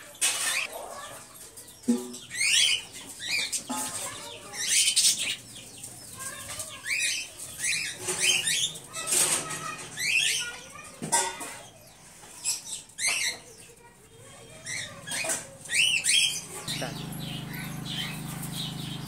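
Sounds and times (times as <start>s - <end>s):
budgerigars chirping: 14.7s - 19.0s.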